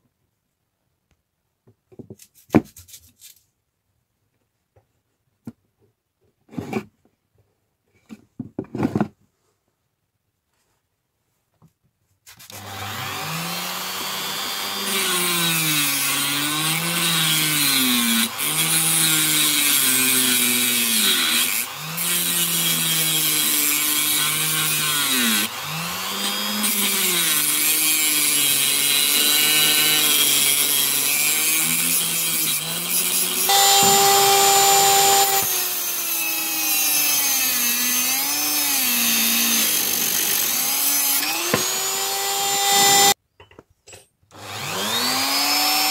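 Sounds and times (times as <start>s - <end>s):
rotary tool cutting steel rod: 12.5s - 43.2s.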